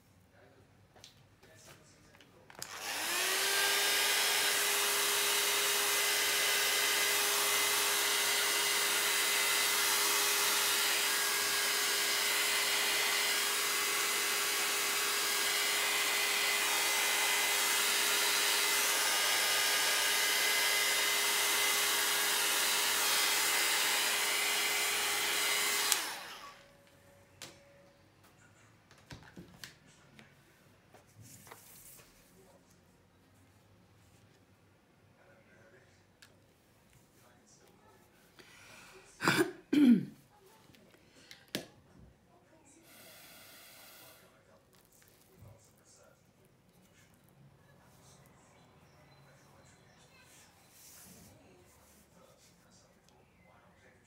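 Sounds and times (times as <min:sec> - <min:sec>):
hot-air blower whirring: 0:02.5 - 0:27.8, 0:42.8 - 0:44.4.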